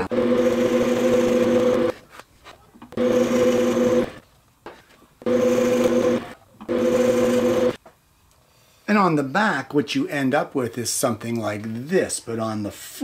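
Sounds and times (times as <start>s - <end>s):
drill press drilling into wood: 0.0s - 1.9s, 2.9s - 4.2s, 5.2s - 7.8s
motor whine: 3.0s - 4.2s.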